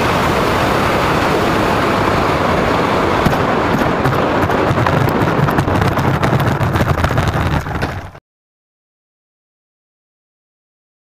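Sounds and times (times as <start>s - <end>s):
loud rushing wind noise: 0.0s - 8.2s.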